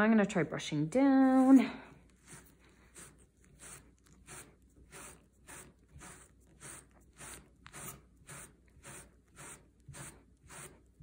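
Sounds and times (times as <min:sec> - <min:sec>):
brush swishing through fur: 0:01.2 - 0:10.9.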